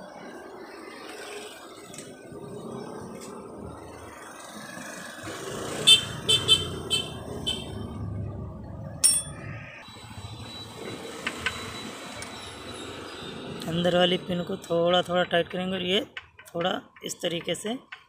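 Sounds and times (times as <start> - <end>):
spanner clinking on metal: 9.0 - 9.4.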